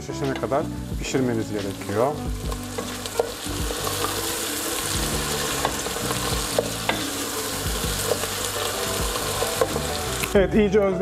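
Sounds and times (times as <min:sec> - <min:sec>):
onions sizzling in oil: 0:00.0 - 0:10.4.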